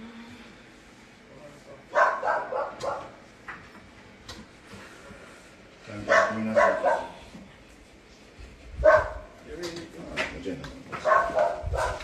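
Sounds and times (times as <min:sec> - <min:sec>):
dog barking: 0:01.9 - 0:03.2, 0:06.0 - 0:07.2, 0:08.8 - 0:09.3, 0:11.0 - 0:12.0.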